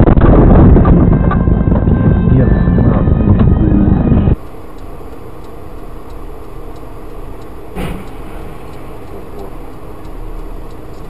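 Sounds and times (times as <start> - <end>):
vehicle and road noise: 0.0 - 11.0
brief knock: 7.8 - 8.5.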